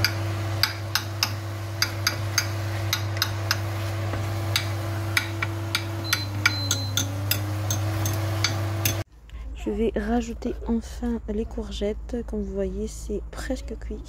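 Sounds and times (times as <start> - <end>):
induction hob humming: 0.0 - 9.1
short beeps: 6.0 - 7.1.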